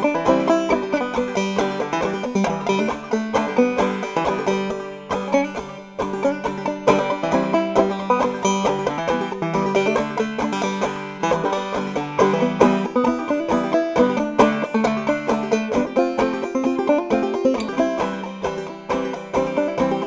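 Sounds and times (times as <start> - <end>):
banjo plucking: 0.0 - 20.0.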